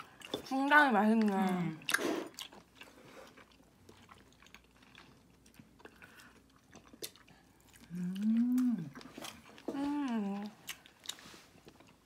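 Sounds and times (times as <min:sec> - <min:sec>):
chewing food: 0:00.0 - 0:12.0
person humming mmm: 0:07.9 - 0:09.0.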